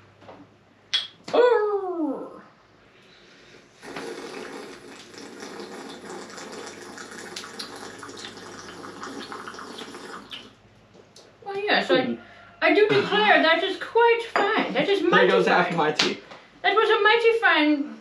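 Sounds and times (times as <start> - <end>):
person slurping hot tea: 3.7 - 10.5.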